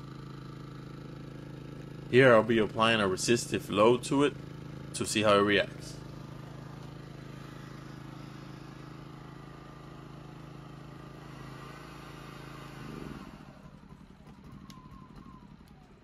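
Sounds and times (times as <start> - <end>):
generator engine running: 0.0 - 16.0
hair dryer: 11.3 - 13.5.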